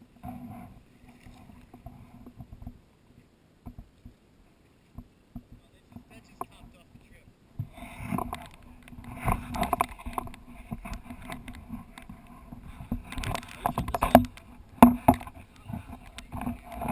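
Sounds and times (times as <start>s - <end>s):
camera pole knocks and bumps: 12.8s - 16.9s.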